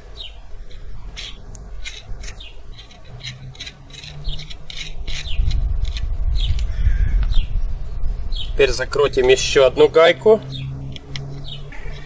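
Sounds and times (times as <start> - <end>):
low rumble: 0.0 - 9.8
small metal parts clicking: 0.7 - 6.7.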